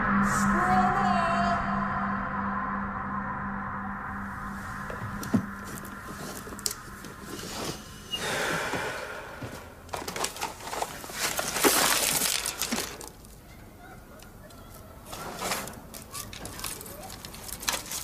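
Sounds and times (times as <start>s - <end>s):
paper rustling: 4.6s - 7.9s, 9.9s - 13.4s, 14.7s - 18.0s.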